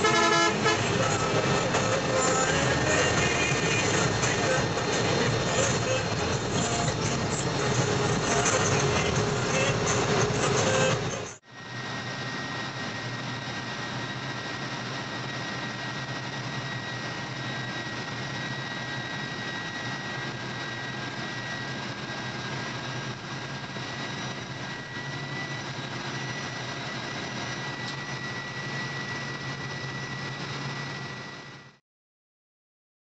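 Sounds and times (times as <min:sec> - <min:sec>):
engine and road drone: 0:00.0 - 0:31.8
thin high whine: 0:00.0 - 0:31.8.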